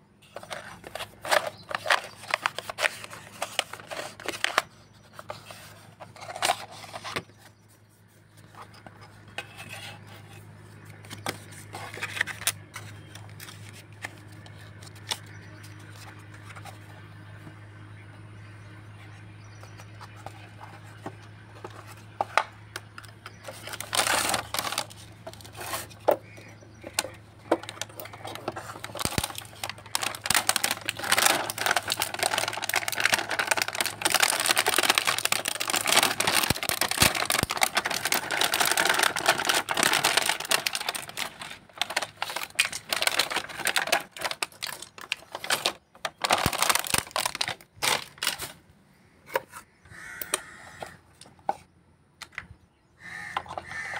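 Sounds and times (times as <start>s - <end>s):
plastic bag crinkling: 0.4s - 7.2s, 23.3s - 26.2s, 26.8s - 48.6s
plastic toy pieces clicking: 26.9s - 48.4s.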